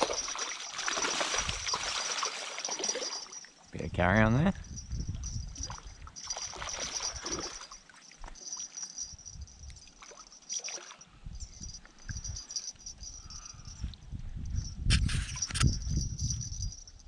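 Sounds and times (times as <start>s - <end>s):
fish thrashing and splashing: 0.0s - 3.7s, 5.2s - 11.0s.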